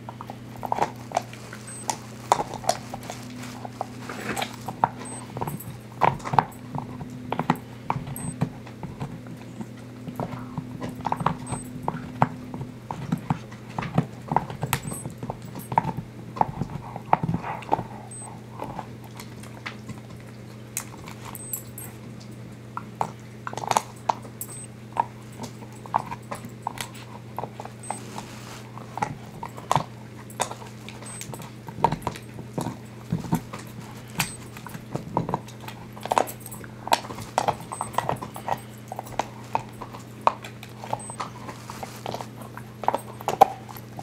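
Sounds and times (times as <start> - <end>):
low hum: 0.0 - 12.8, 21.2 - 22.0
dog teeth gnawing hoof: 0.0 - 44.0.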